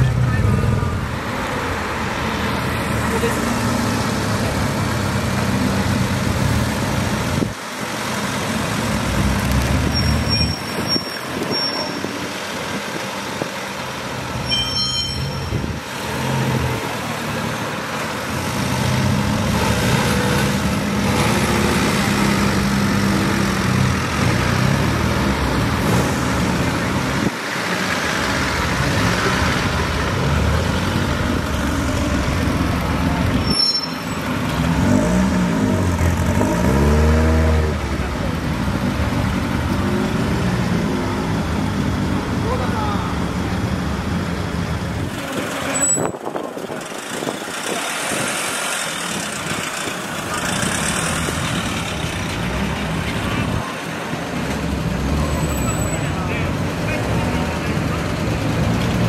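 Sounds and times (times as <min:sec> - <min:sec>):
brief high squeaks: 0:09.9 - 0:12.2, 0:14.4 - 0:15.6, 0:33.4 - 0:34.3, 0:45.7 - 0:46.2
car engines running at low speed: 0:34.2 - 0:59.0.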